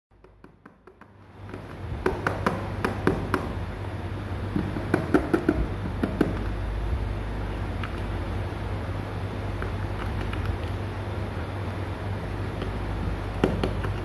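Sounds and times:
steady low hum: 0.1s - 14.0s
kitten claws tapping on plastic: 13.4s - 14.0s.

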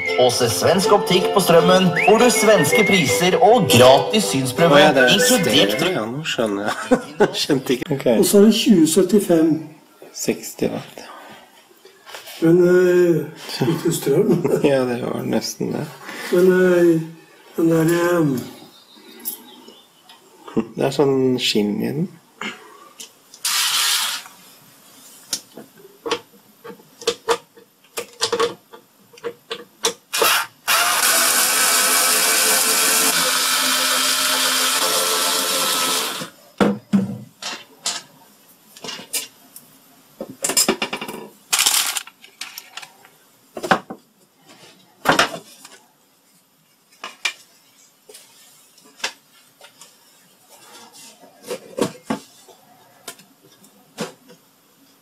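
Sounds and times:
electric drill-driver running: 23.4s - 24.3s, 30.1s - 36.3s.

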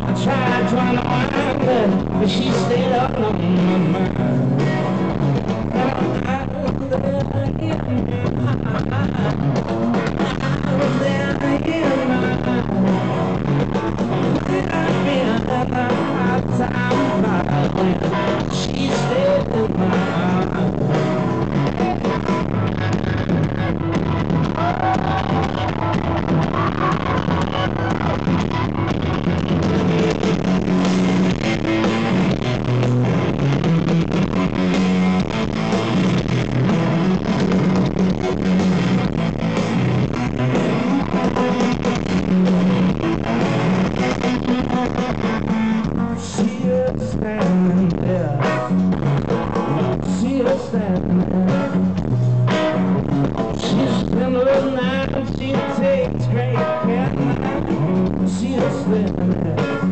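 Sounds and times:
drum kit: 0.0s - 59.9s
electric guitar: 0.0s - 59.9s.

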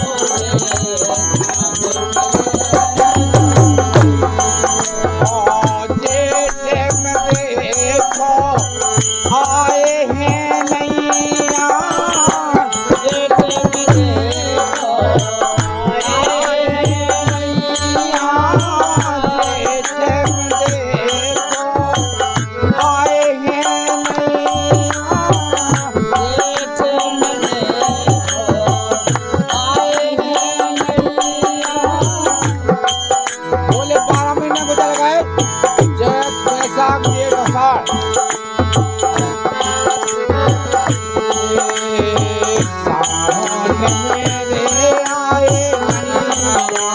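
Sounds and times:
hand cymbals jingling: 0.0s - 16.5s
hand drum beat: 0.0s - 46.9s
harmonium: 0.0s - 46.9s
person singing: 0.0s - 46.9s.

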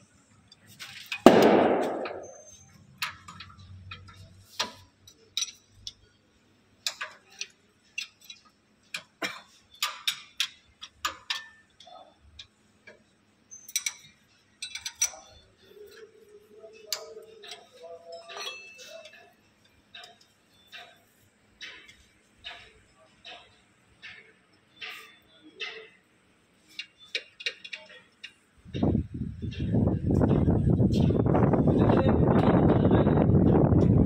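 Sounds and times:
hand tools clinking against bolts: 2.0s - 6.1s, 6.8s - 26.0s.

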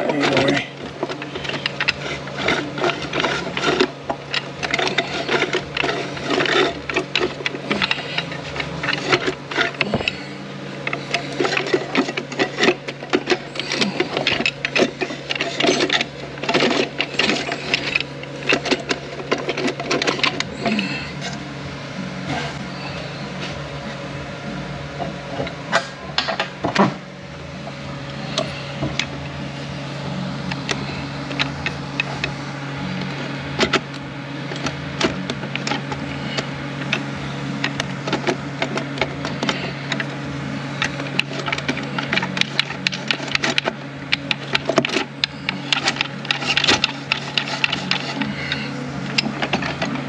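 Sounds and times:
metallic clicking and rattling: 0.0s - 21.4s, 40.8s - 50.0s
steady low hum: 0.0s - 50.0s.

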